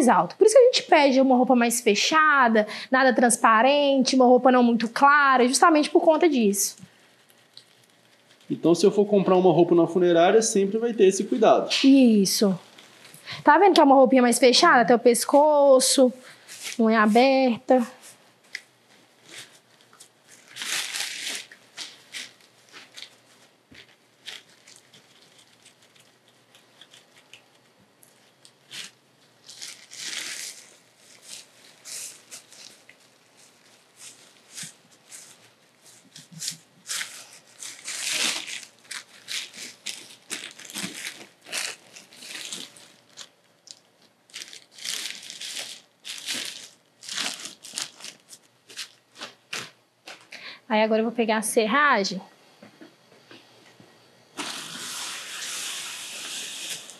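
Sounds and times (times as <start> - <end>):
plastic and cloth rustling: 4.8 - 9.5, 11.2 - 13.9, 15.2 - 50.4, 54.4 - 56.9.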